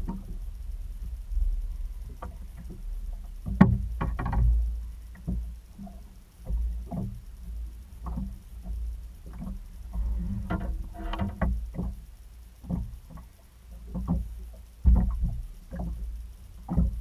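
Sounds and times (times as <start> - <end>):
waves lapping against hull: 0.0 - 17.0
wind rumble on microphone: 0.0 - 17.0
knocks and splashes: 3.4 - 17.0.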